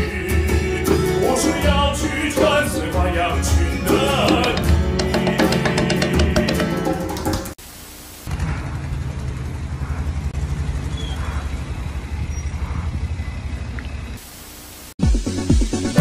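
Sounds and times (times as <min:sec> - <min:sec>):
music: 0:00.0 - 0:07.6, 0:15.0 - 0:16.0
static hiss: 0:07.5 - 0:08.3, 0:14.2 - 0:15.0
wind buffeting microphone: 0:08.6 - 0:14.2.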